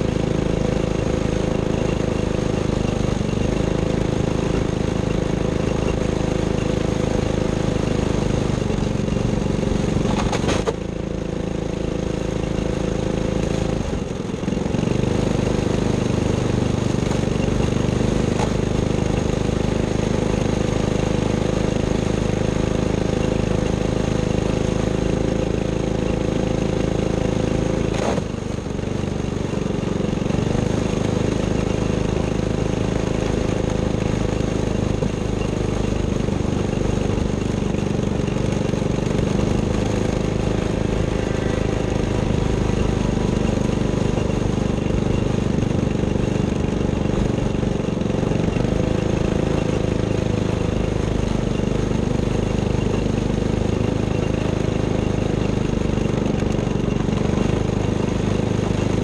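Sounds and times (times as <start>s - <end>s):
engine running at low revs: 0.0s - 59.0s.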